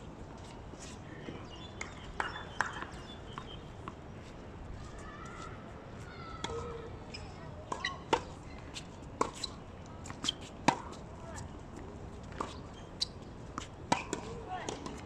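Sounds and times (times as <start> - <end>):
tennis ball bouncing on hard court: 1.8 - 3.5, 12.3 - 15.0.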